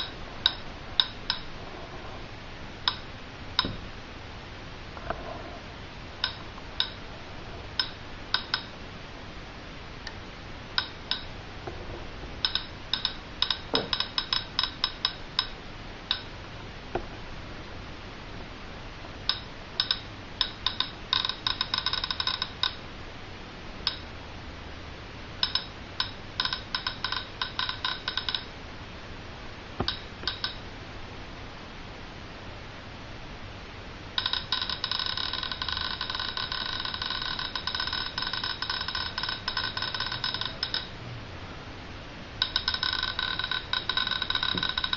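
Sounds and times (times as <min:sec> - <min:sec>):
radiation meter clicking: 0:00.0 - 0:01.5, 0:02.8 - 0:03.8, 0:06.2 - 0:07.0, 0:07.7 - 0:08.8, 0:10.0 - 0:11.4, 0:12.4 - 0:17.0, 0:19.0 - 0:22.8, 0:23.8 - 0:24.1, 0:25.4 - 0:28.5, 0:29.8 - 0:30.6, 0:34.2 - 0:41.0, 0:42.4 - 0:44.9.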